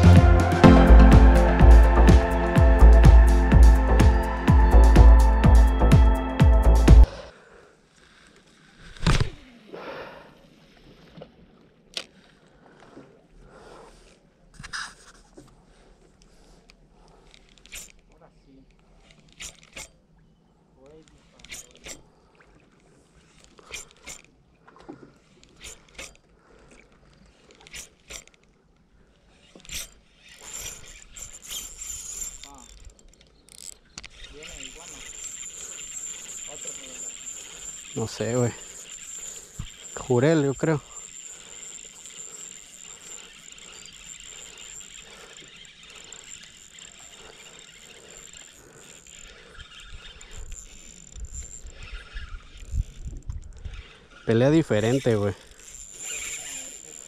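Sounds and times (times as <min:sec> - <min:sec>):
high-pitched whine: 0:00.0 - 0:07.1
line pulling off reel drag: 0:07.9 - 0:20.2, 0:20.8 - 0:57.0
fishing reel clicks: 0:16.2 - 0:20.1, 0:20.9 - 0:22.2, 0:23.2 - 0:24.4, 0:25.3 - 0:57.0.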